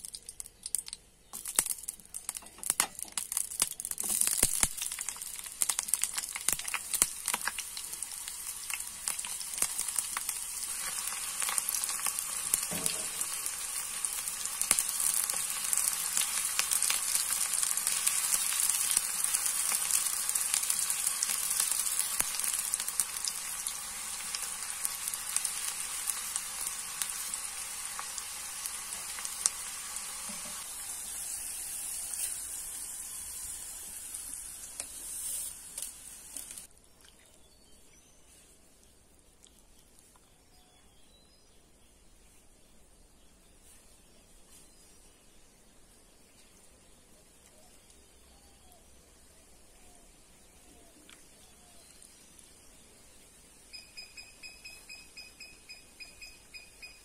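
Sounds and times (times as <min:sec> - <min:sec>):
onions frying in hot oil: 0:00.0 - 0:36.7, 0:51.7 - 0:52.7.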